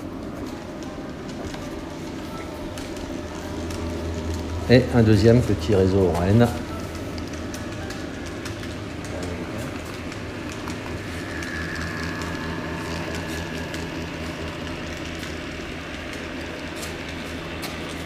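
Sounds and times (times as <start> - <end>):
wheels clicking on track: 0.0 - 18.0
model train motor hum: 0.9 - 18.0.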